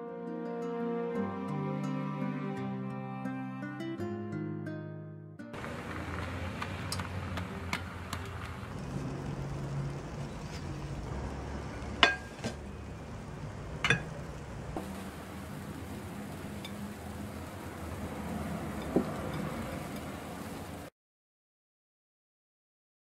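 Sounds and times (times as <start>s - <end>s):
pan clinking on ceramic plate: 12.0s - 12.6s, 13.8s - 14.1s.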